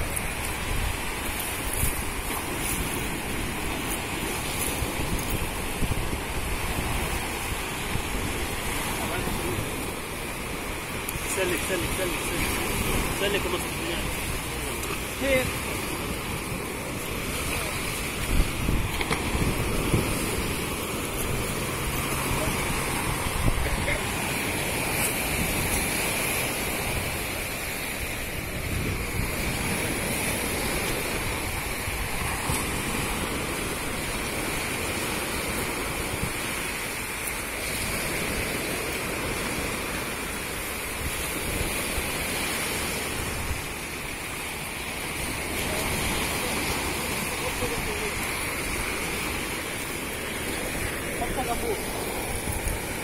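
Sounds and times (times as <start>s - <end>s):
sea surf on shore: 0.0s - 53.0s
wind buffeting microphone: 0.0s - 53.0s.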